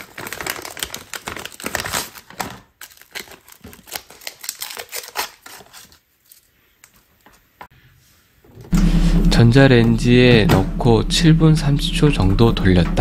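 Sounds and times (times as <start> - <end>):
plastic packet crinkling: 0.0 - 6.5.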